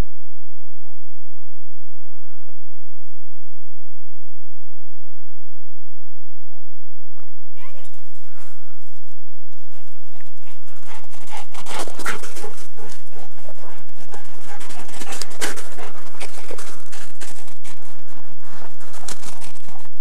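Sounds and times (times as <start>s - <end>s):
footsteps crunching in snow: 8.0s - 20.0s
dog panting: 9.6s - 19.9s.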